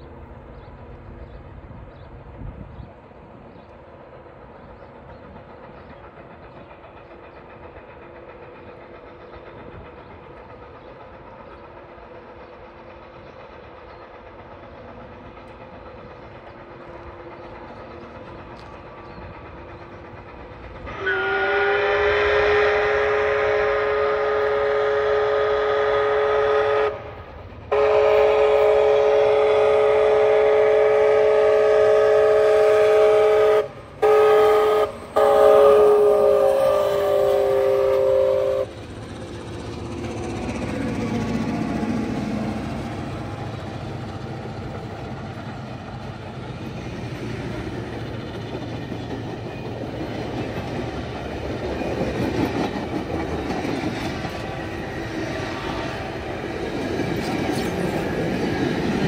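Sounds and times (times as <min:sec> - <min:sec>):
steam whistle blasts: 0:20.9 - 0:27.1, 0:27.7 - 0:38.7.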